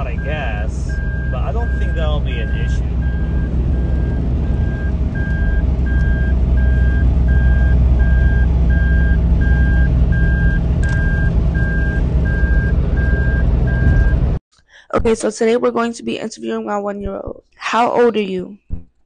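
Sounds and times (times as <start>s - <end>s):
dashboard warning chime beeping: 0.0s - 14.2s
engine and road rumble: 0.0s - 14.4s.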